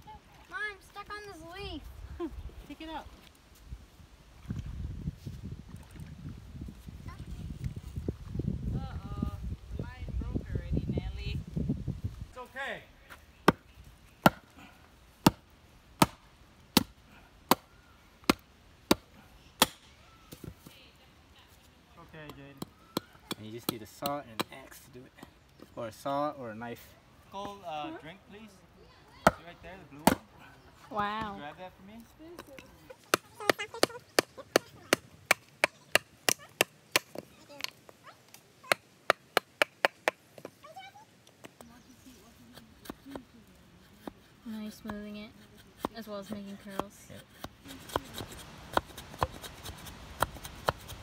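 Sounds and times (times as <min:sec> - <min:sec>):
axe chopping wood: 0:14.2 - 0:14.5, 0:15.2 - 0:20.5, 0:22.2 - 0:24.6, 0:29.2 - 0:30.3, 0:32.4 - 0:37.8, 0:38.7 - 0:40.5, 0:43.9 - 0:51.0
blade chopping wood: 0:16.0 - 0:17.6, 0:30.0 - 0:30.3, 0:43.9 - 0:51.0.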